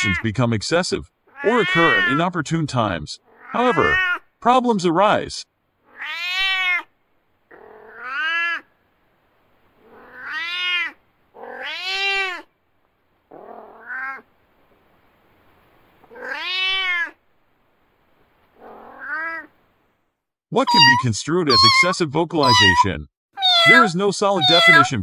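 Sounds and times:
cat meowing: 1.3 - 2.2, 3.3 - 4.2, 5.9 - 6.9, 7.5 - 8.7, 9.8 - 12.5, 13.4 - 14.2, 16.1 - 17.2, 18.6 - 19.5, 20.7 - 25.0.

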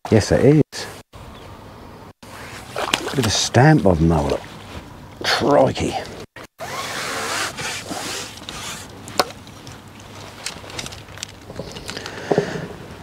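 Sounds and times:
rustling handling noise: 6.0 - 12.8.

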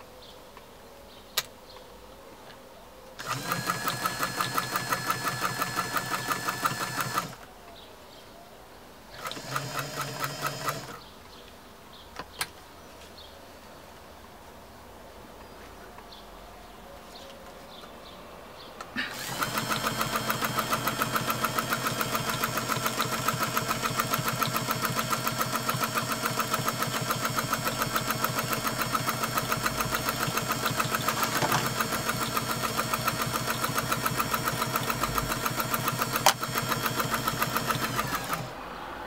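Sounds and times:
sewing machine sewing: 3.2 - 7.4, 9.2 - 11.0, 19.0 - 38.6.

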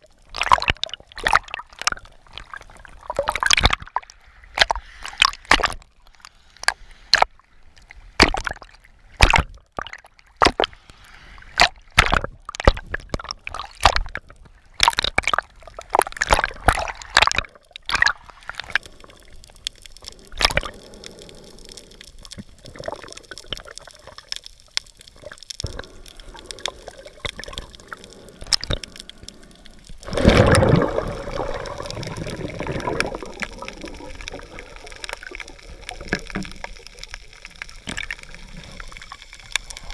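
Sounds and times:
water splashing and sloshing: 0.0 - 39.9
muffled underwater hiss: 4.2 - 8.2, 10.7 - 11.6, 18.2 - 39.9
water gushing surge: 25.2 - 39.9.

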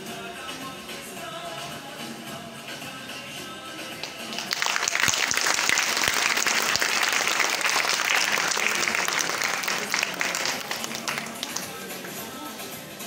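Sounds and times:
audience applause: 4.0 - 12.2.

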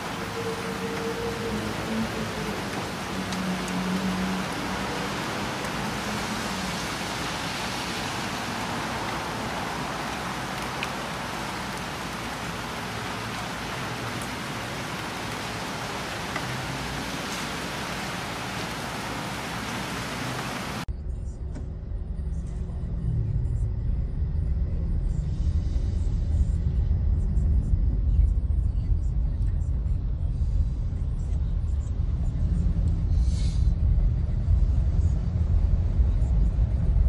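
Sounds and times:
heavy rain on car roof: 0.0 - 20.9.

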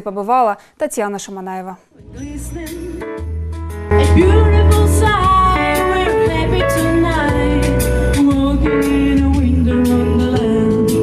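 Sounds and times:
woman singing into microphone: 2.0 - 3.3, 3.9 - 11.0
music with bass and percussion: 2.0 - 11.0.

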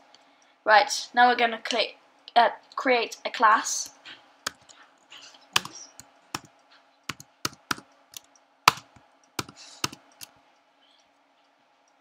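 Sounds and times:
faint steady hum: 0.0 - 12.0
keyboard keys clicking: 5.6 - 5.8, 7.1 - 10.3.

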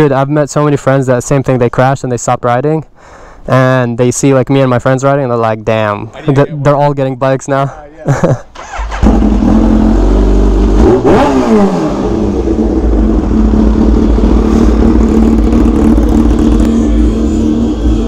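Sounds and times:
motorcycle engine revving and idling: 8.6 - 18.0.

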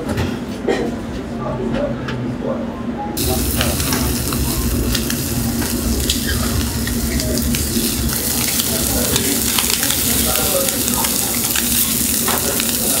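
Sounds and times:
steady low hum: 0.6 - 13.0
skewers sizzling over charcoal: 3.2 - 13.0
fat crackling and popping on coals: 3.3 - 13.0.

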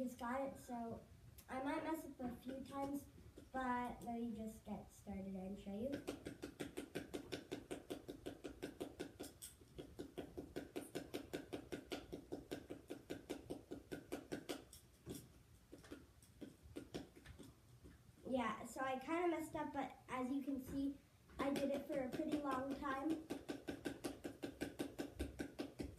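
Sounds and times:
rubber ball tapping paddle: 5.8 - 17.6, 20.7 - 25.9.

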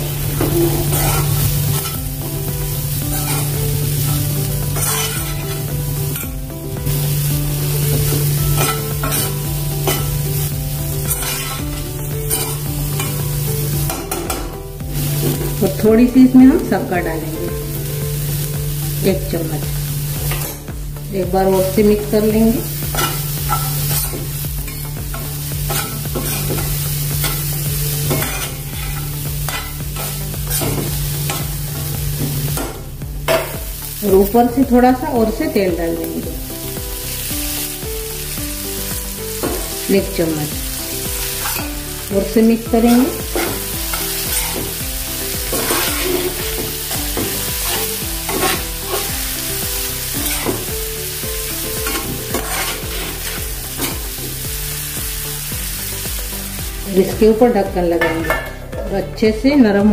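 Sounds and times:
spoon scraping a pan: 0.0 - 15.9, 19.6 - 20.8, 21.6 - 32.6, 37.2 - 54.9
vegetables sizzling in a pan: 0.0 - 58.7.

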